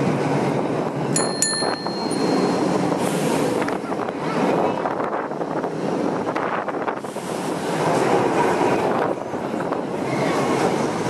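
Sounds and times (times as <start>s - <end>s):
tram rumbling on tracks: 0.0s - 11.0s
wind buffeting microphone: 0.0s - 11.0s
tram bell ringing: 1.1s - 3.7s.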